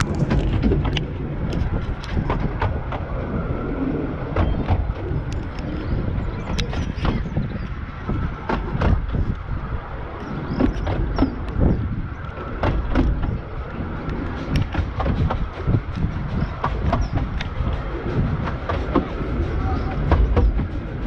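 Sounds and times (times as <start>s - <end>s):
knocks and rattles: 0.0s - 3.1s, 6.4s - 9.5s, 10.5s - 21.0s
train wheels rumbling on rail: 0.0s - 21.0s.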